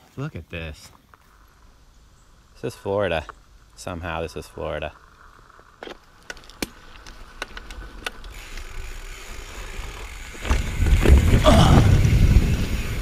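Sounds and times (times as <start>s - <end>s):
bike clicks and knocks: 5.5s - 12.0s
bike rumbling over rocks: 5.6s - 13.0s.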